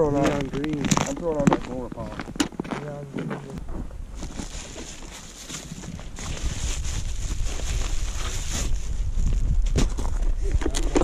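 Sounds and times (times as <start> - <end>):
wind rumble on microphone: 3.4 - 11.0
plastic bag crinkling: 4.2 - 9.0.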